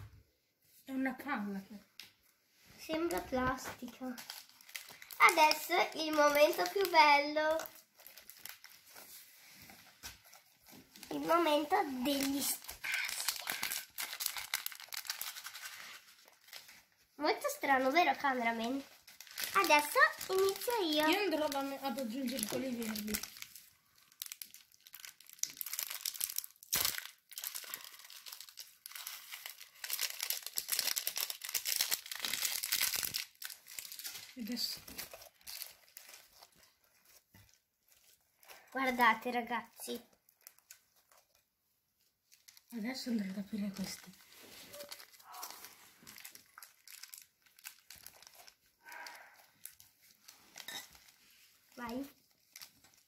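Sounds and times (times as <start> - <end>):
plastic packet crinkling: 2.8 - 39.0, 39.8 - 53.0
sprinkles falling: 11.1 - 16.0, 18.4 - 34.8.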